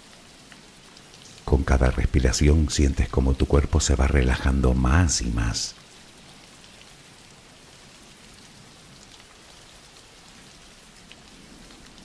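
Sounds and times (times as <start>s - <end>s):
rain falling: 0.0s - 12.0s.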